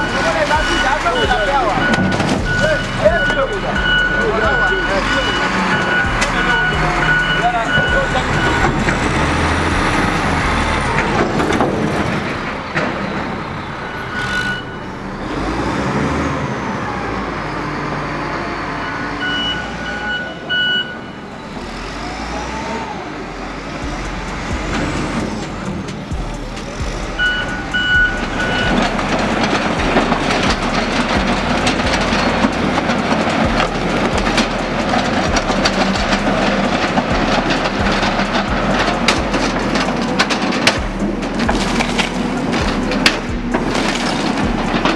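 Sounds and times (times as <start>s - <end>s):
reversing alarm beeps: 0.0s - 8.8s, 13.6s - 15.0s, 18.6s - 21.5s, 27.2s - 28.9s
heavy demolition machinery running: 0.0s - 44.9s.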